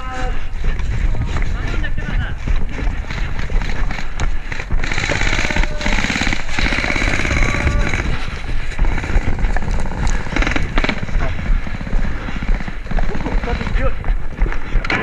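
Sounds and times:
wind rumble on microphone: 0.0s - 15.0s
airsoft gun full-auto rattle: 3.6s - 8.2s.

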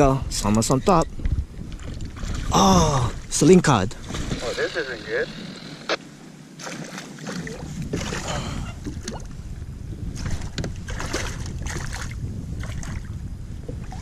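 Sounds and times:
wind rumble on microphone: 0.0s - 6.5s, 7.2s - 14.0s
water splashing against hull: 1.6s - 4.6s, 6.6s - 14.0s.

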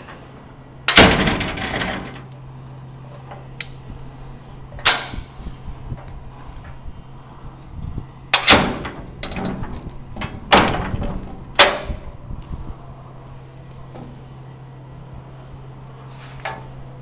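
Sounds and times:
metal gate latch clanking: 0.9s - 2.3s, 4.8s - 5.3s, 8.3s - 12.1s.

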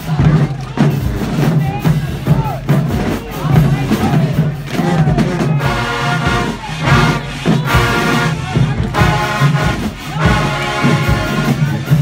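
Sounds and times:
marching drums: 0.0s - 12.0s
brass horns blasting: 5.6s - 11.9s.

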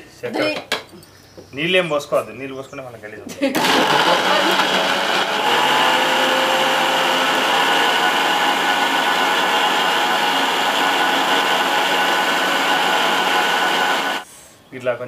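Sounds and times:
mixer grinder grinding coconut: 3.6s - 14.3s.

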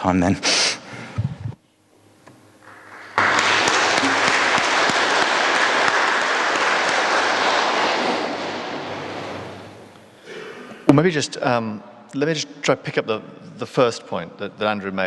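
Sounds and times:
audience applauding: 2.6s - 9.6s.

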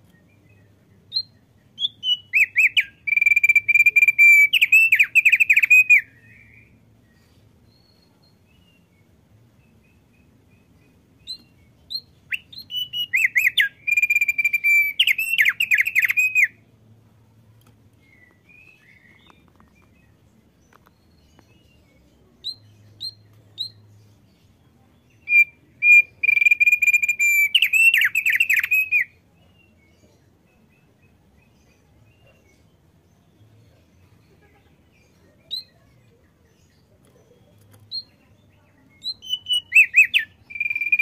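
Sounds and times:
bird singing warbled notes: 9.7s - 16.6s, 39.0s - 41.0s.

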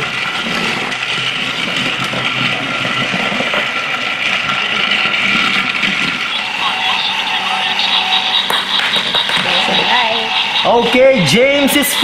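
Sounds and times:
toy train motor whirring: 0.0s - 12.0s.

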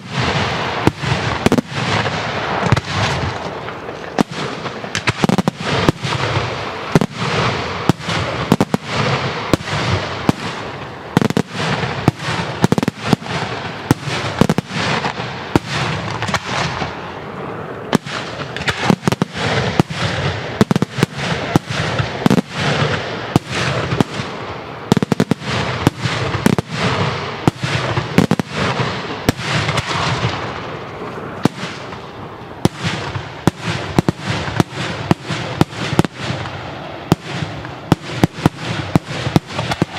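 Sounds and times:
firework shells bursting: 17.9s - 39.9s.

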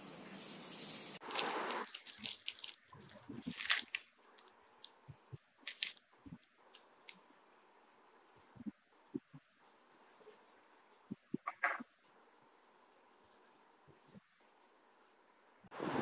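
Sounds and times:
plastic bags crinkling: 1.2s - 5.0s, 5.6s - 6.0s.

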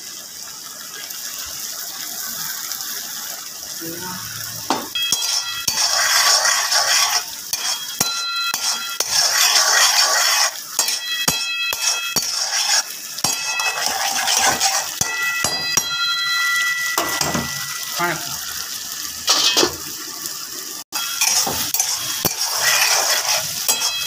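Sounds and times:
meat sizzling in fat: 0.0s - 24.0s
metal ladle scraping a pan: 4.7s - 18.0s, 19.3s - 19.9s, 21.0s - 24.0s
pan ringing: 4.9s - 6.6s, 7.6s - 9.6s, 10.8s - 12.4s, 13.3s - 18.4s, 23.6s - 24.0s.

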